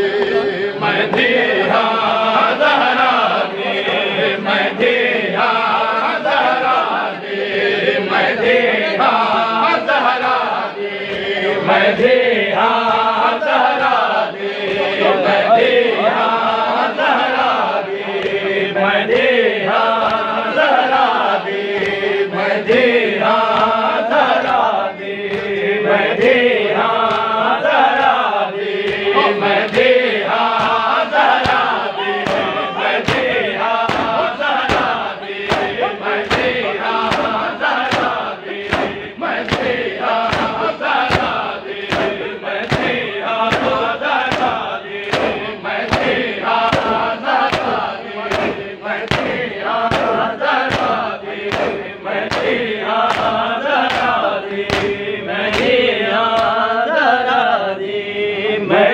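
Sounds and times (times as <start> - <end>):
men singing in chorus: 0.0 - 58.9
chest-beating slaps: 11.0 - 11.4, 12.8 - 15.2, 18.2 - 26.4, 27.0 - 56.6.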